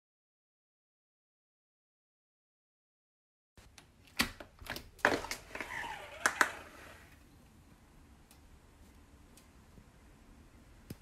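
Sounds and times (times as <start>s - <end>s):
faint background hiss: 3.6s - 11.0s.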